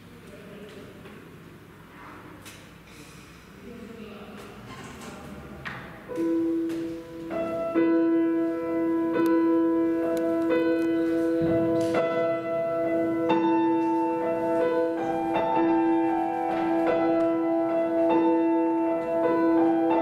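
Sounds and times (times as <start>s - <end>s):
grand piano classical piece: 5.9s - 20.0s.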